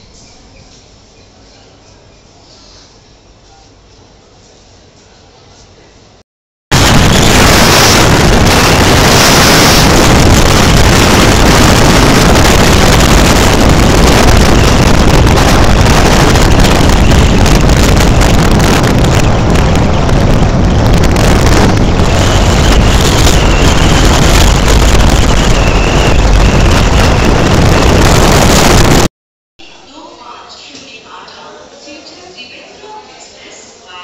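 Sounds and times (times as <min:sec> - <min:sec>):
wind buffeting microphone: 0:06.8 - 0:29.1.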